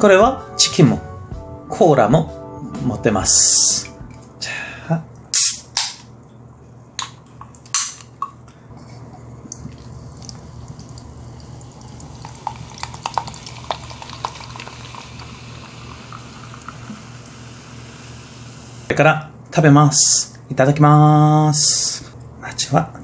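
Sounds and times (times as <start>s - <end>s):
can opening with hissing crack: 5.3s - 6.1s
fizzing bubbles popping: 9.5s - 17.2s
cola pouring into plastic cup: 9.5s - 17.3s.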